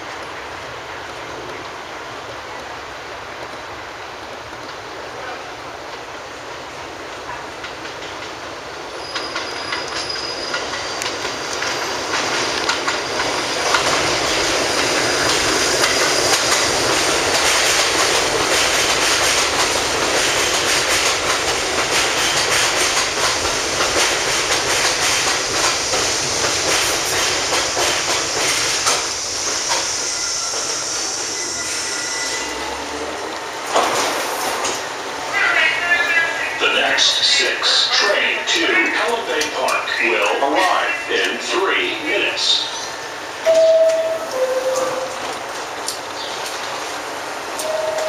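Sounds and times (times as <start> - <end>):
train wheels clattering over rail joints: 7.2 - 30.8.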